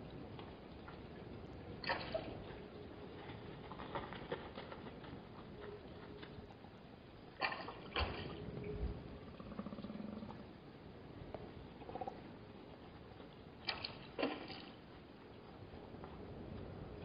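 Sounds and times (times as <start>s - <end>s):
wind and hiss: 0.0s - 17.0s
animal hooves clicking and scuffing: 2.3s - 7.3s.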